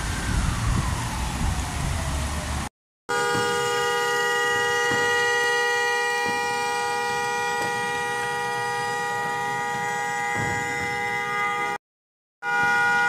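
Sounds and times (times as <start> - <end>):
vehicle horns blaring: 3.1 - 11.8, 12.4 - 13.0.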